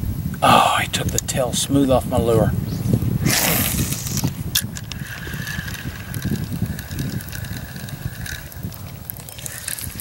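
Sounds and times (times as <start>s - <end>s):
fishing reel gears whirring: 3.3s - 10.0s.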